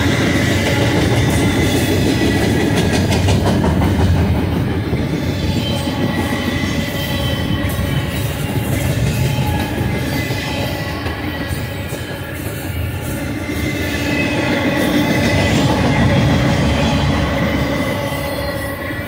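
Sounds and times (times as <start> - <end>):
steel wheels rumbling on rail: 0.0 - 19.0
high wheel squeal: 5.0 - 19.0.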